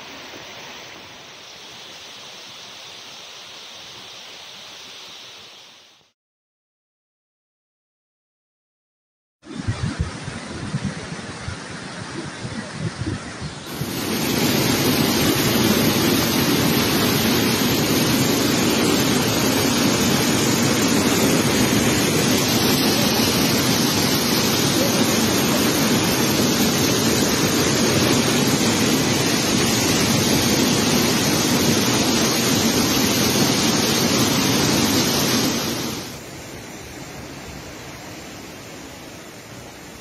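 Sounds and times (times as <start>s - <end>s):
floodwater rushing: 9.6s - 40.0s.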